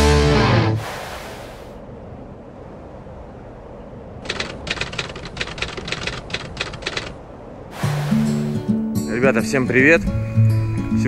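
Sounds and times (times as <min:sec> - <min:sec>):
rapid sharp clicks: 0:04.2 - 0:07.2.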